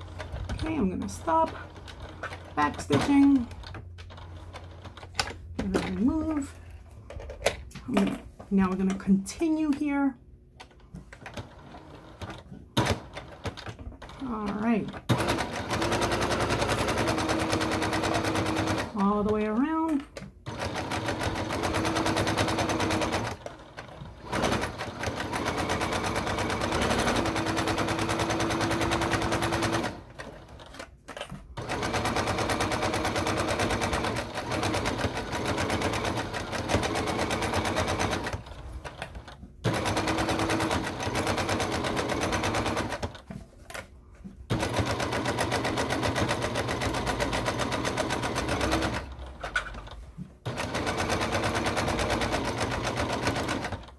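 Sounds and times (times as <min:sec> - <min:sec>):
sewing machine needle rattling: 0:10.6 - 0:43.2, 0:44.5 - 0:53.9.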